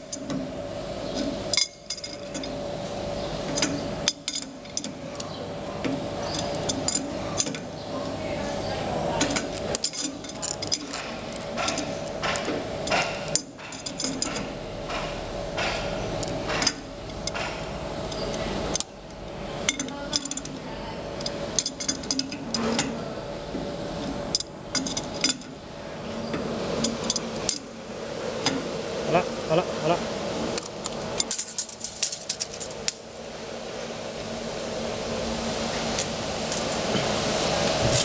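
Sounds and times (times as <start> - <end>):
metal tools clicking and clinking: 1.2 - 2.6, 3.5 - 5.3, 6.2 - 7.7, 9.2 - 18.9, 19.7 - 20.6, 21.2 - 22.9, 24.3 - 25.6, 30.6 - 33.0.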